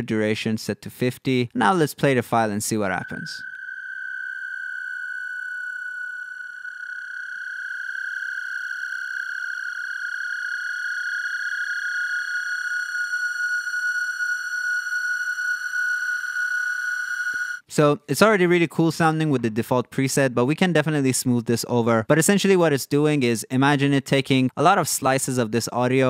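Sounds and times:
steady high processed tone: 1.6s - 17.6s.

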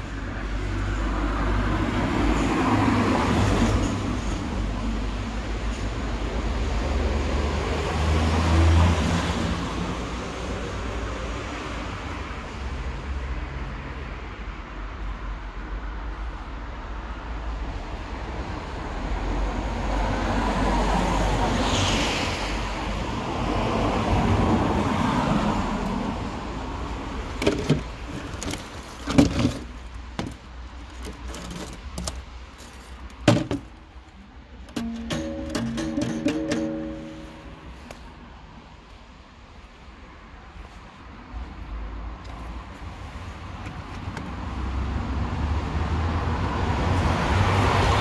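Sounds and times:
street traffic: 0.0s - 48.0s
household items knocking: 27.4s - 30.4s, 33.2s - 33.7s, 34.7s - 37.2s.

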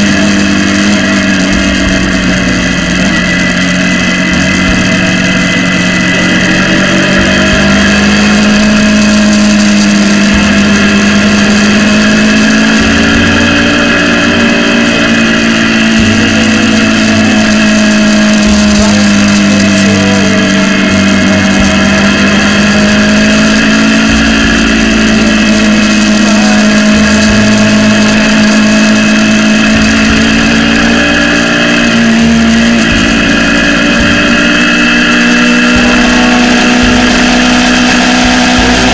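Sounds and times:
motorcycle engine cruising: 0.0s - 38.9s.

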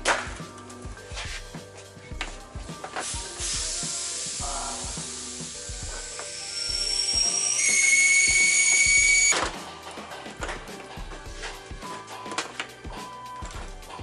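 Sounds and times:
light background music: 0.0s - 14.0s
power tool whirring: 5.8s - 9.4s.

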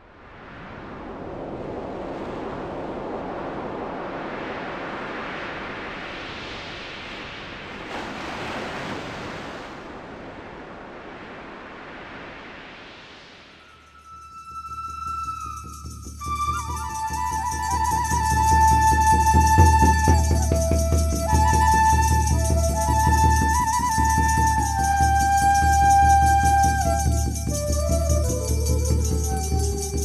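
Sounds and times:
ocean waves washing onto beach: 0.0s - 13.7s.

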